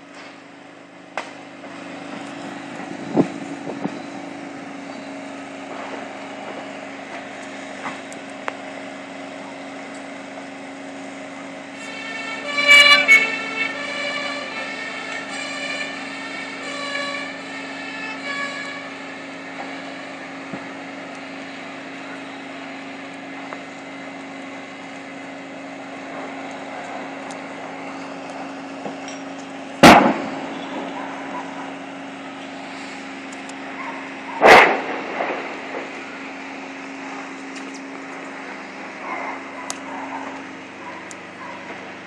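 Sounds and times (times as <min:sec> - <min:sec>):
fire engine siren: 0:00.0 - 0:42.0
explosions with rumble: 0:29.8 - 0:31.0, 0:34.4 - 0:36.1.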